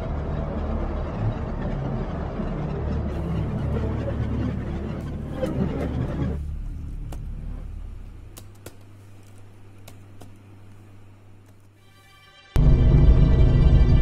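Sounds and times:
faint steady hum: 3.2s - 13.9s
loud low rumble: 12.6s - 14.0s.

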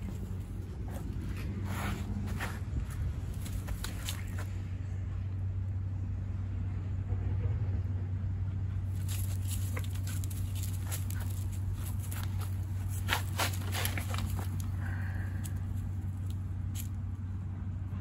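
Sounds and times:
footsteps on dry leaves: 0.0s - 4.6s, 8.9s - 17.0s
steady low hum: 0.0s - 18.0s.

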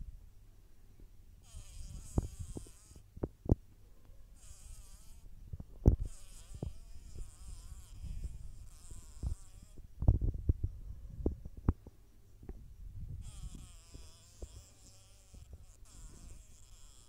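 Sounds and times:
house fly buzzing: 1.4s - 3.1s, 4.4s - 10.1s, 13.2s - 17.0s
low thumps and knocks: 9.2s - 13.2s.

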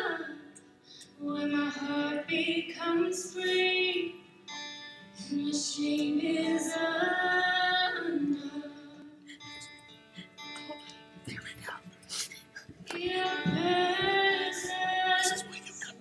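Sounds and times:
woman singing into a microphone: 0.0s - 4.2s, 5.2s - 9.6s, 12.8s - 16.0s.

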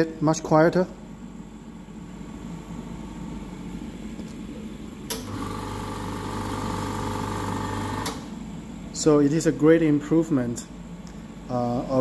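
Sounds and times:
louder compressor humming and whining: 0.0s - 12.0s
air compressor running: 5.1s - 9.2s.

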